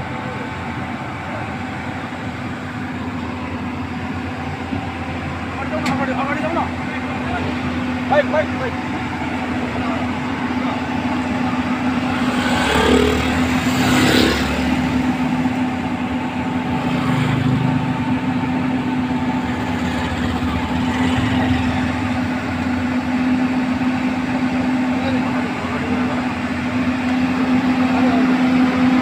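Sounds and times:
excavator diesel engine running: 0:00.0 - 0:29.0.

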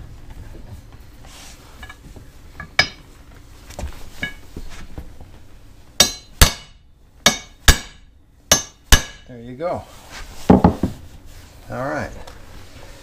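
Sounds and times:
hammer striking metal bar: 0:06.0 - 0:09.3.

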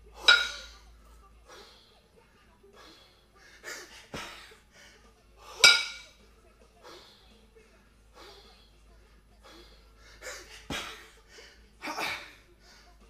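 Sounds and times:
kettlebells clanking: 0:00.0 - 0:00.8, 0:05.4 - 0:06.2
heavy breathing: 0:01.3 - 0:05.7, 0:06.8 - 0:13.0.

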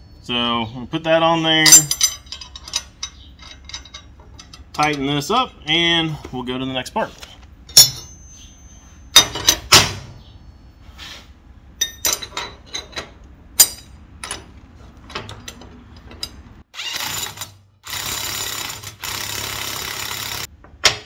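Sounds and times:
steel parts clanking on table: 0:01.6 - 0:05.0, 0:07.7 - 0:09.9, 0:11.8 - 0:14.5
power drill running: 0:16.8 - 0:20.5.

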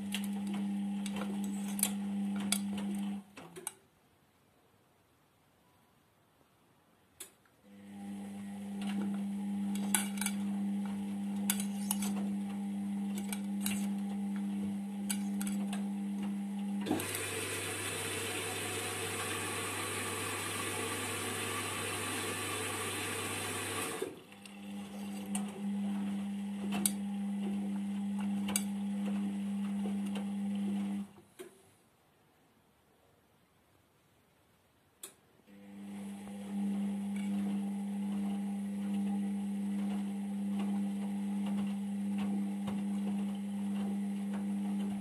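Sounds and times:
washing machine drum motor humming: 0:00.0 - 0:03.2, 0:07.9 - 0:31.1, 0:35.7 - 0:45.0.

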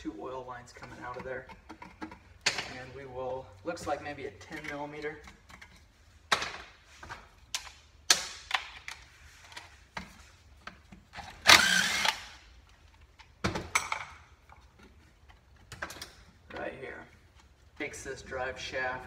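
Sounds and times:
cordless power driver spinning: 0:11.4 - 0:12.4.

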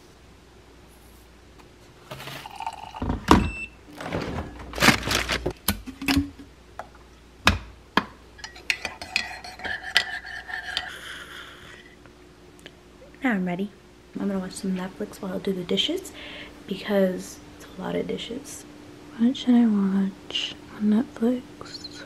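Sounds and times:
liquid pouring into mug: 0:02.4 - 0:03.0.

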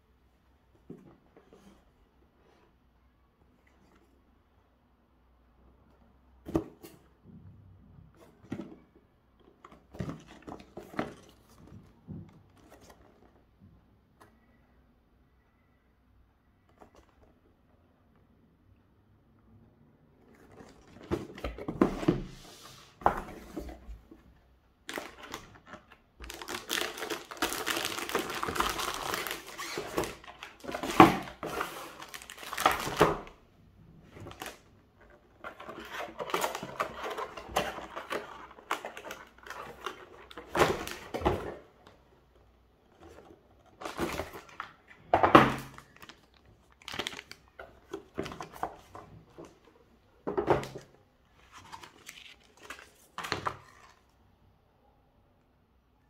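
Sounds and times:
cardboard sliding and scraping: 0:21.1 - 0:24.1, 0:30.7 - 0:32.2
packaging crinkling: 0:24.9 - 0:33.3, 0:45.6 - 0:49.0.

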